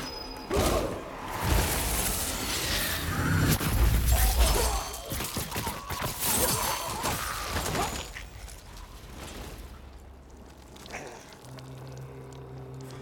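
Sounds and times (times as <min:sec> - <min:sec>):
magic crackling and shattering: 0:00.0 - 0:11.3.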